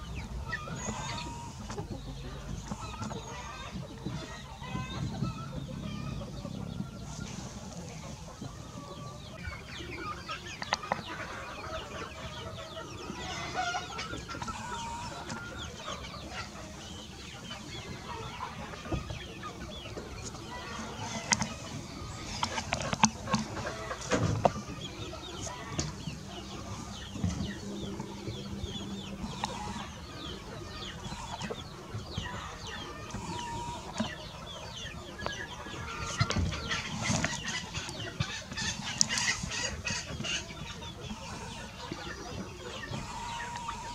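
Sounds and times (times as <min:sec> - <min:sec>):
chickens clucking: 0:00.0 - 0:43.9.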